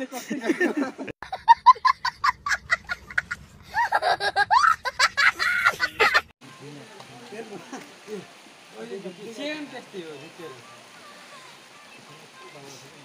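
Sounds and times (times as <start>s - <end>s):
young boy laughing: 0.4s - 6.3s
voices: 5.6s - 13.0s.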